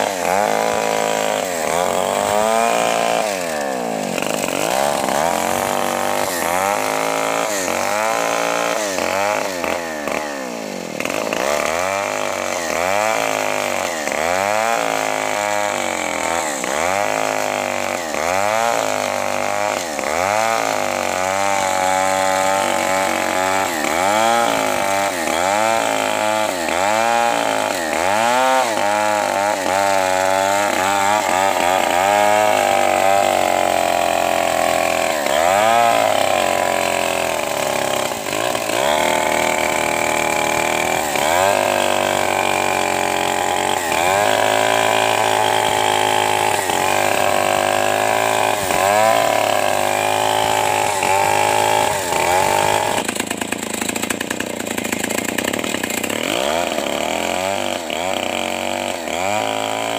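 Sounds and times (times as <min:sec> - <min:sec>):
chainsaw cutting log: 0:00.0 - 0:59.9.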